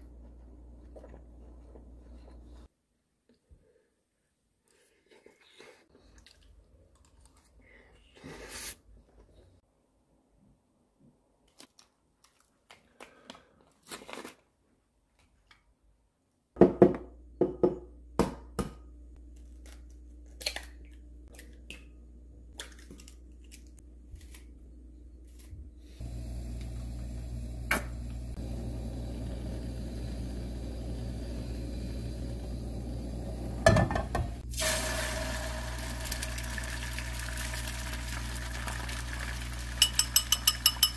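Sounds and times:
steady hum: 0:26.0 - 0:36.0
egg sizzling in frying pan: 0:26.0 - 0:40.9
spoon clicking on bowl: 0:39.8 - 0:40.9.

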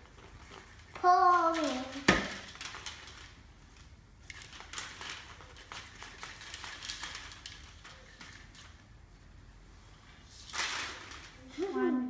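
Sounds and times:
popcorn pattering onto paper: 0:00.0 - 0:09.0.

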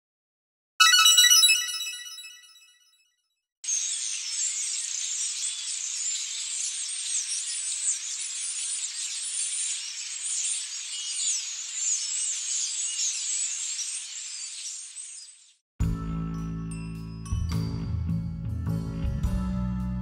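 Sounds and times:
small birds chirping: 0:03.7 - 0:15.6.

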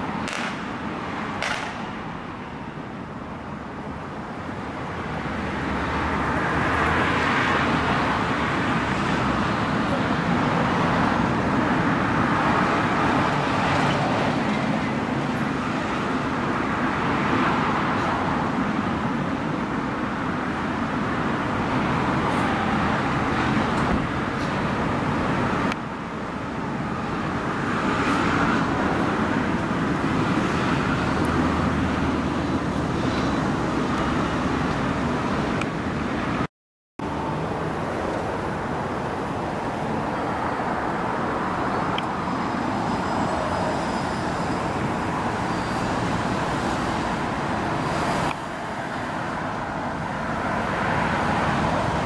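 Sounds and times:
passing cars hissing: 0:21.1 - 0:25.7, 0:37.1 - 0:52.0.

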